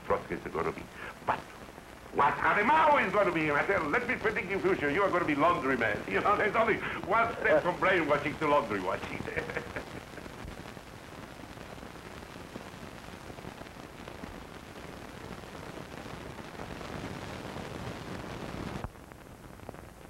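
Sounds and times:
old recording hiss: 0:00.0 - 0:20.0.

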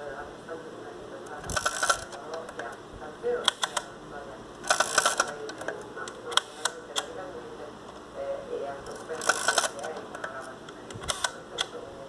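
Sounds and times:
camera controls clicking: 0:01.5 - 0:02.7, 0:04.6 - 0:07.1, 0:08.9 - 0:11.8.

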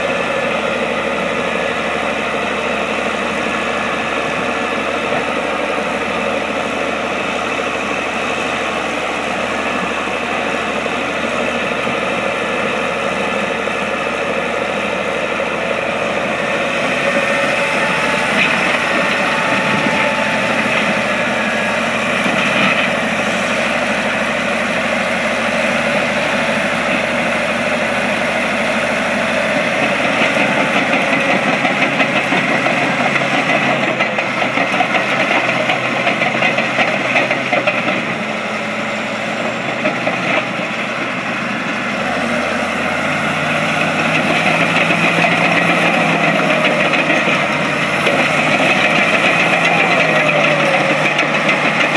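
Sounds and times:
diesel engine running: 0:00.0 - 0:51.9
steel tracks clattering: 0:11.3 - 0:41.2, 0:42.2 - 0:51.9.

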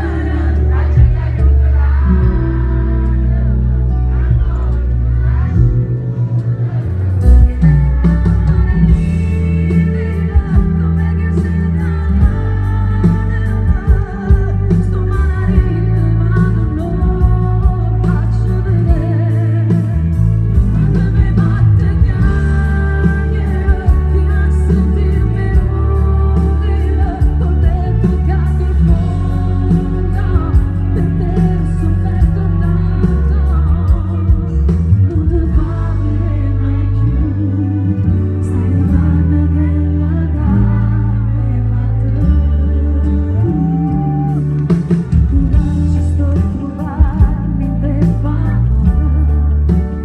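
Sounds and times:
heavy bass line: 0:00.0 - 0:50.0
loud band backing: 0:00.0 - 0:50.0
woman singing into a microphone: 0:00.0 - 0:50.0.

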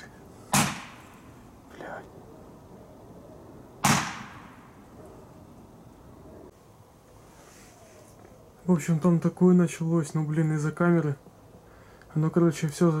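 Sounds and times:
firework shots with echo: 0:00.5 - 0:01.2, 0:03.8 - 0:04.8.

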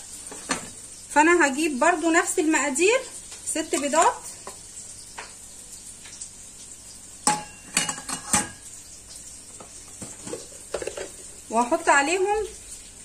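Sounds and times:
metal bowl clinking on bowl rim: 0:07.3 - 0:08.6.

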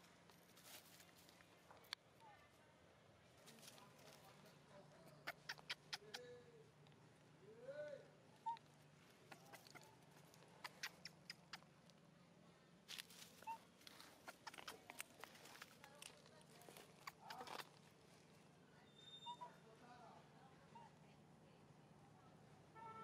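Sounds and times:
dry leaves crackling: 0:00.3 - 0:01.6, 0:12.9 - 0:17.8
young monkey squeaking: 0:05.0 - 0:06.3, 0:08.4 - 0:11.7, 0:13.3 - 0:15.9, 0:16.7 - 0:17.7, 0:18.8 - 0:19.6.

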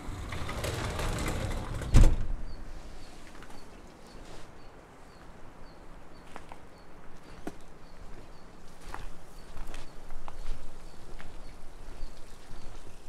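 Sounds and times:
loud thump: 0:01.7 - 0:02.4.

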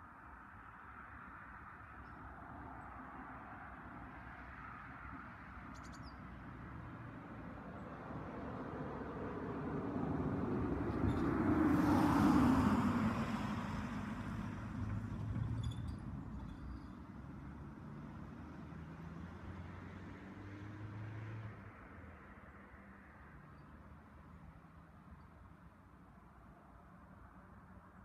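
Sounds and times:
vehicle passing by: 0:08.1 - 0:15.6, 0:17.2 - 0:22.0.

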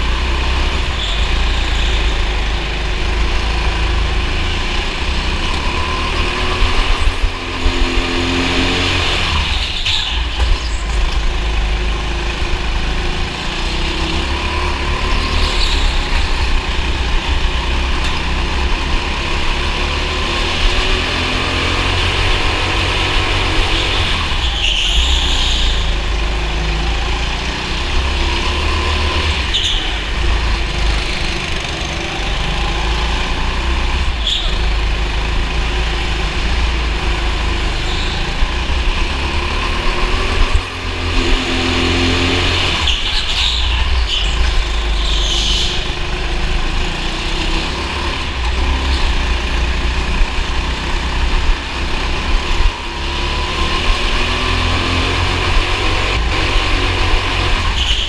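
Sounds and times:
racing kart engine: 0:00.0 - 0:58.0
high squeals: 0:00.7 - 0:02.6, 0:14.7 - 0:17.2, 0:22.7 - 0:26.2, 0:29.4 - 0:30.6, 0:34.1 - 0:34.8, 0:37.6 - 0:38.7, 0:42.1 - 0:46.2, 0:57.6 - 0:58.0.

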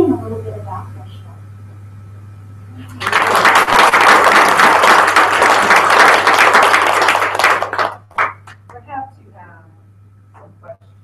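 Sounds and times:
audience applauding: 0:02.9 - 0:08.6.

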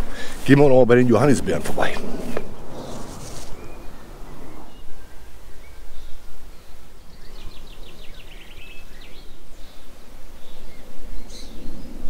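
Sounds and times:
low rumble: 0:01.0 - 0:06.3.

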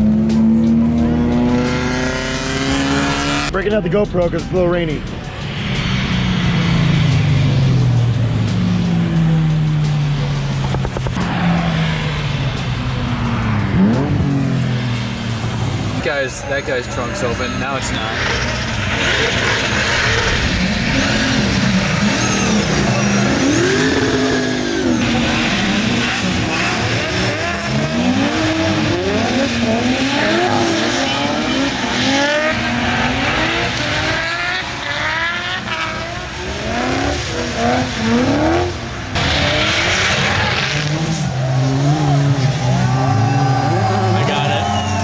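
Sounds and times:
car engines revving: 0:00.0 - 0:45.0
tyre squeal: 0:16.6 - 0:25.0.

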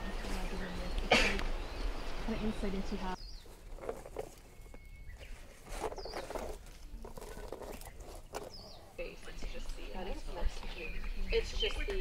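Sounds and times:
leaves and grass rustling: 0:00.0 - 0:12.0.

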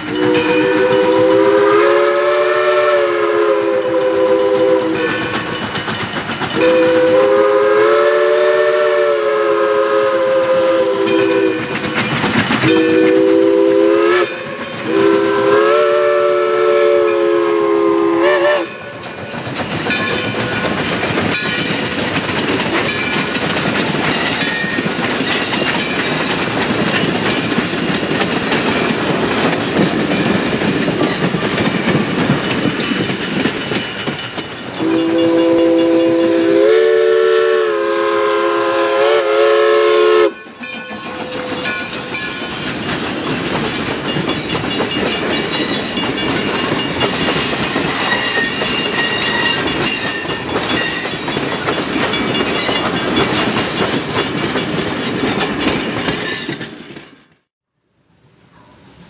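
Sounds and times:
steam locomotive chime whistle: 0:00.0 - 0:05.7, 0:06.5 - 0:19.3, 0:34.7 - 0:42.8, 0:44.1 - 0:54.1
train coaches rumbling past: 0:00.0 - 0:57.5
wheels clicking over rail joints: 0:03.8 - 0:07.2, 0:11.1 - 0:13.1, 0:18.6 - 0:36.5, 0:40.3 - 0:57.5.

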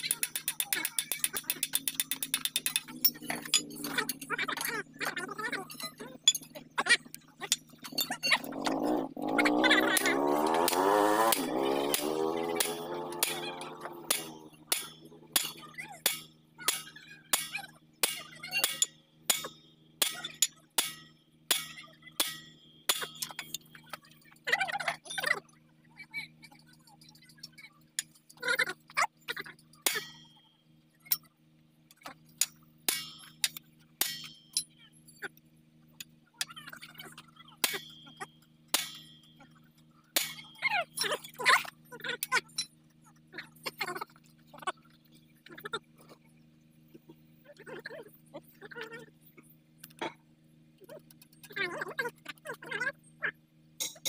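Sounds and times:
wavering pitched drone: 0:01.0 - 0:16.3
sledgehammer clanking on metal: 0:10.0 - 0:23.6, 0:29.8 - 0:30.3, 0:32.4 - 0:34.6, 0:37.6 - 0:39.3, 0:40.2 - 0:41.3.

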